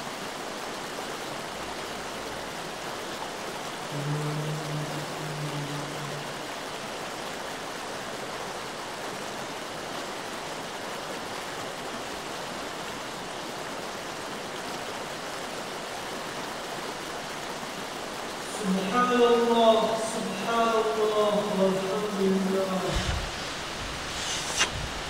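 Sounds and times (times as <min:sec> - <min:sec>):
low held tone: 0:03.9 - 0:06.4
steady rushing noise: 0:22.5 - 0:25.0.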